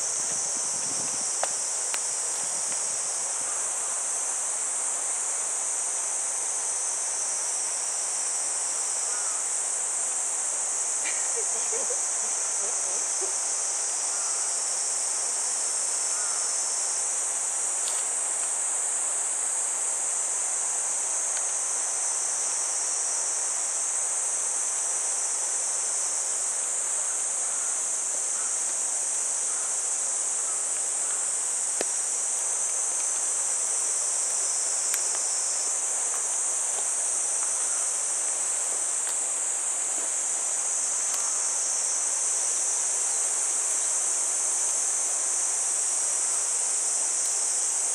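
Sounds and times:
insects chorus: 0.0s - 47.9s
faint ticks: 0.3s - 2.1s, 21.3s - 21.6s.

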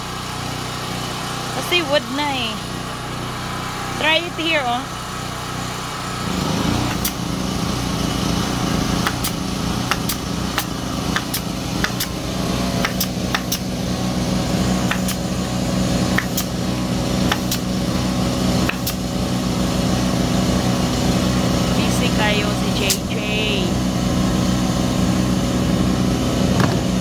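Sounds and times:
steady machine hum: 0.0s - 27.0s
staple gun shots: 12.8s - 13.6s, 17.3s - 17.7s.

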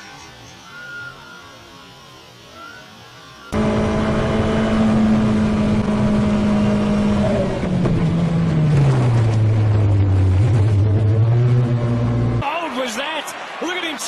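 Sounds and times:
racing car engine high note: 3.5s - 7.6s.

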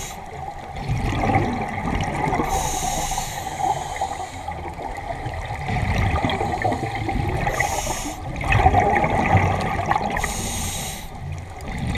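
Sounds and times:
regulator inhalation hiss: 0.0s - 0.4s, 2.4s - 4.7s, 6.5s - 8.3s, 10.2s - 11.3s
bubbles gurgling underwater: 0.0s - 11.9s.

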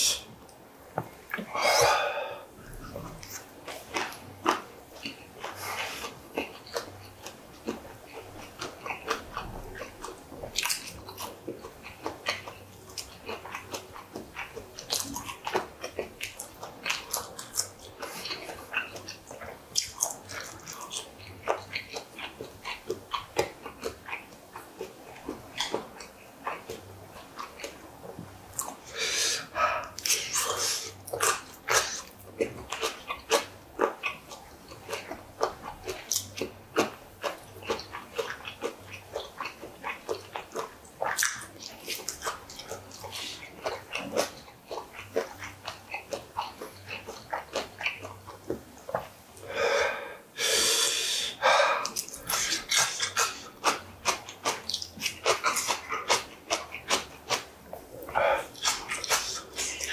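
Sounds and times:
breath or sniff: 1.6s - 2.5s, 28.9s - 29.9s, 49.4s - 53.0s
wet chewing and smacking: 2.6s - 49.5s, 51.3s - 59.9s.

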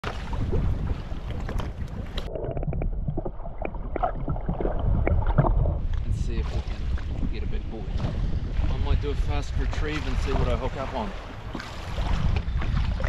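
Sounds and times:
low rumble: 0.0s - 13.0s
sea water sloshing: 0.0s - 13.0s
wind on microphone: 0.0s - 13.0s
underwater clicks: 1.2s - 6.1s, 11.5s - 13.0s.

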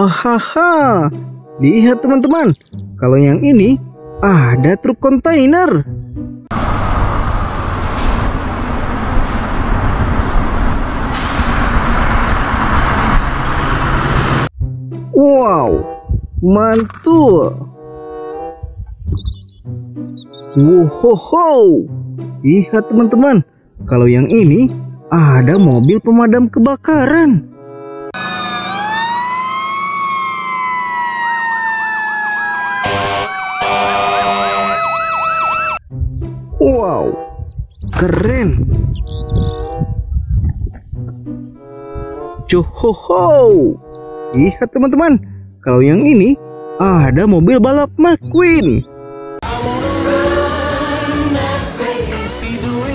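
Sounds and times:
diesel trucks driving past: 6.5s - 14.5s, 27.5s - 35.8s, 48.9s - 52.9s
air brake hisses: 11.1s - 11.7s
siren wail: 28.1s - 35.9s
siren warbling yelp: 28.2s - 35.8s
harsh horn blast: 32.7s - 34.9s.

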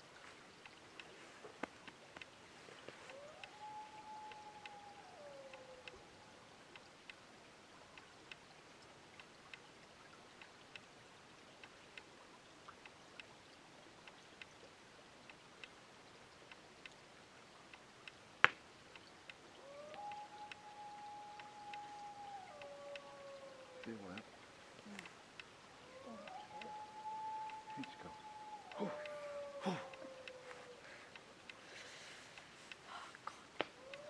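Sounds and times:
faint regular ticks: 0.0s - 34.0s
distant wild dog howling: 3.0s - 6.4s, 19.5s - 25.0s, 25.8s - 31.1s, 33.7s - 34.0s.

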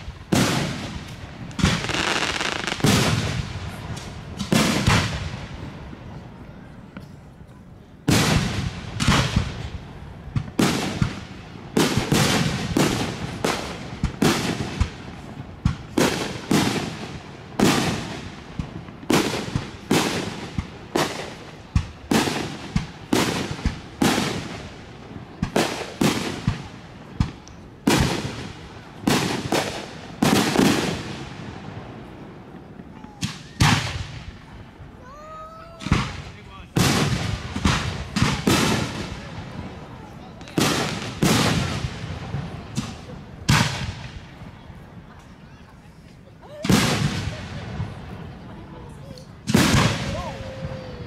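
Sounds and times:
firework shells booming: 35.8s - 44.5s, 49.3s - 51.0s.

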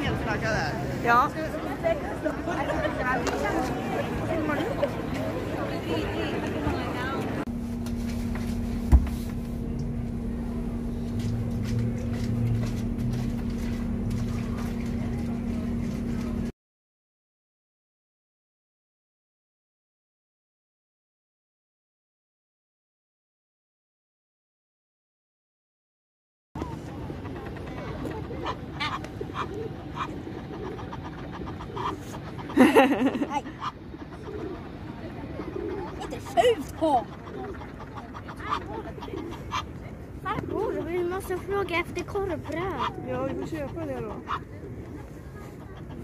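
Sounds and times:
bus engine humming: 0.0s - 16.5s
outdoor background noise: 0.0s - 16.5s, 26.6s - 46.0s
waterfowl short calls: 35.8s - 39.7s.

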